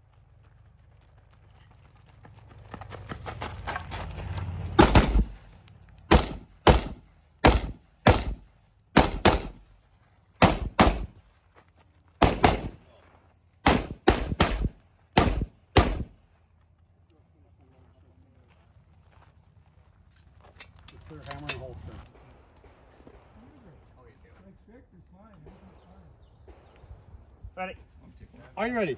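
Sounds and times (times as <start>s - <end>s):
rifle shots: 4.8s - 5.4s, 6.1s - 9.7s, 10.4s - 11.2s, 12.2s - 12.8s, 13.6s - 16.2s.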